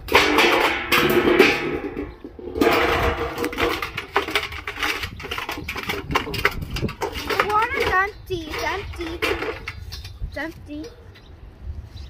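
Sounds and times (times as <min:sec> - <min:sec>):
metal dog bowl clanging on concrete: 0:00.0 - 0:10.2
bowl rattling: 0:00.2 - 0:10.1.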